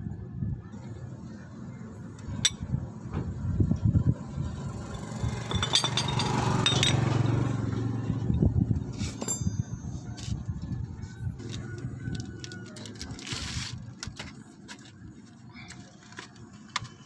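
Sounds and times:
low engine-like hum: 0.0 - 17.0
metal parts clinking: 4.9 - 7.0, 8.9 - 10.4.

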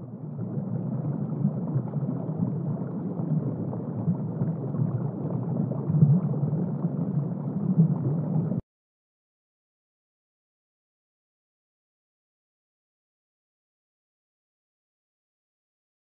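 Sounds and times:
low muffled underwater rumble: 0.0 - 8.6.

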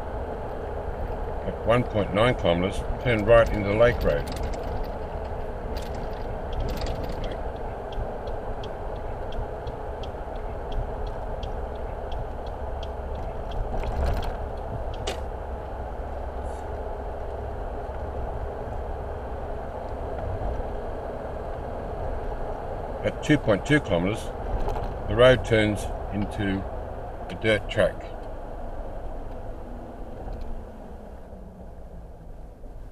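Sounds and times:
car road and engine noise: 0.0 - 32.9
turn signal ticking: 0.4 - 15.4.

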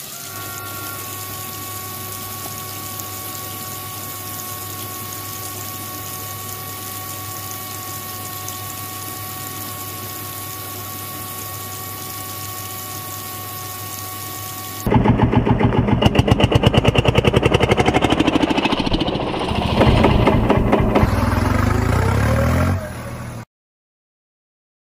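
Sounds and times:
toy water pump motor whine: 0.0 - 23.4
toy tractor engine chugging: 14.9 - 22.1.

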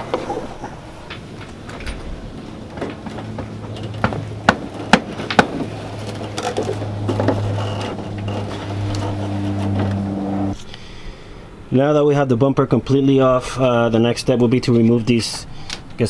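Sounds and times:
low steady hum: 0.0 - 16.0
plastic bumper knocking and clicking: 2.7 - 9.0.

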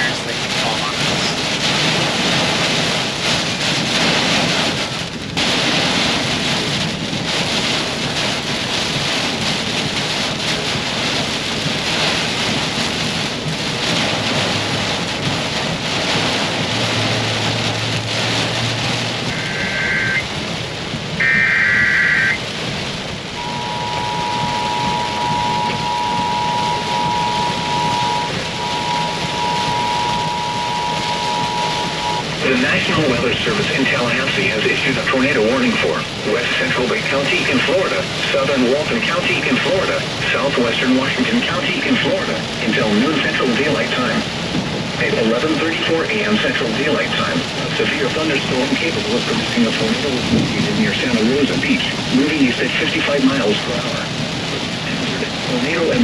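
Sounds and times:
heavy rain on car roof: 0.0 - 56.0
radio data bursts: 19.3 - 20.3, 21.2 - 22.5, 23.4 - 34.0
two-tone alert signal: 19.3 - 20.3, 21.2 - 22.4, 23.4 - 32.2.

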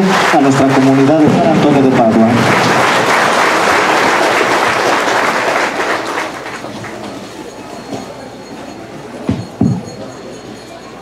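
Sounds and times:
congregation applauding: 0.0 - 7.4.

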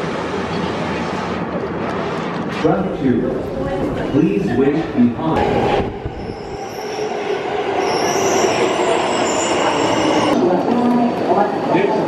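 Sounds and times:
subway train rolling rumble: 0.0 - 12.0.

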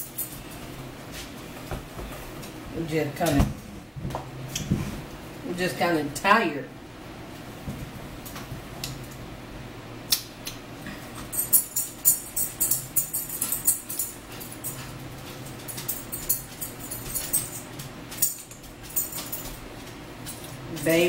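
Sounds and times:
light metallic jingling and rattling: 0.0 - 0.8, 11.0 - 21.0
steady low hum: 0.0 - 21.0.

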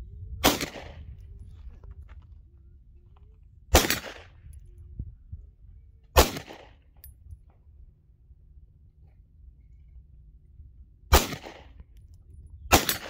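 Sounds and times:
pistol shots: 0.4 - 1.1, 3.7 - 4.4, 6.2 - 6.9, 11.1 - 11.8, 12.7 - 13.0.

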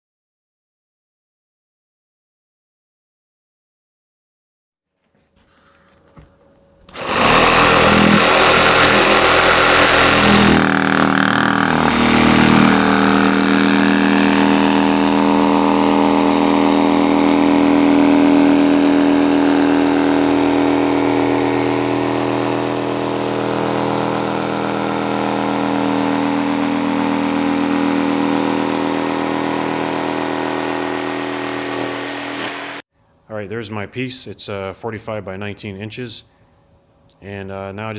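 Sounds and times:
jigsaw cutting foam board: 6.8 - 32.8.

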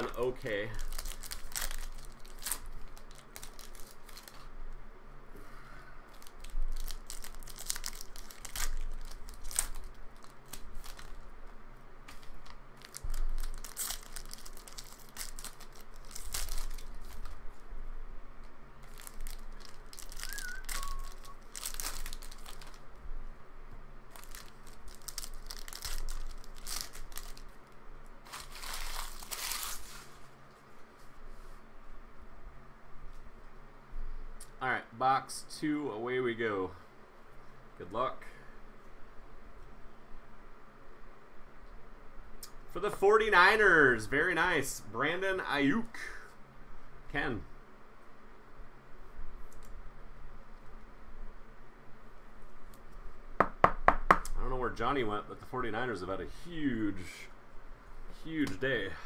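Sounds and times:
foil wrappers crinkling and tearing: 0.0 - 4.5, 6.1 - 11.3, 12.0 - 17.4, 18.8 - 23.0, 24.1 - 30.3.

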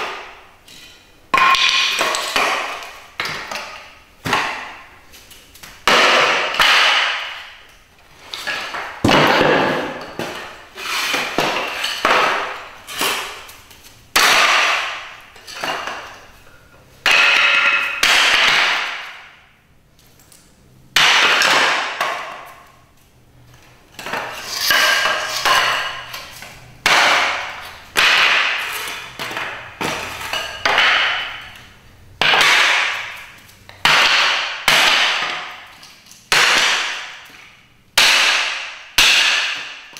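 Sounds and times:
hatchet chopping wood: 5.8 - 7.4, 14.2 - 15.0, 17.0 - 19.2, 21.0 - 22.4, 26.8 - 31.4, 32.2 - 35.6, 36.3 - 37.4, 38.0 - 39.9.

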